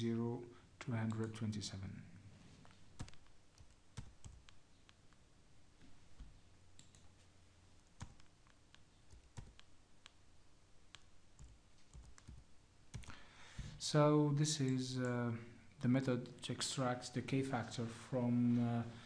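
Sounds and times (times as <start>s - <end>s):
keyboard and mouse clicks: 3.0s - 5.2s, 6.8s - 7.2s, 7.8s - 10.2s, 10.9s - 13.2s.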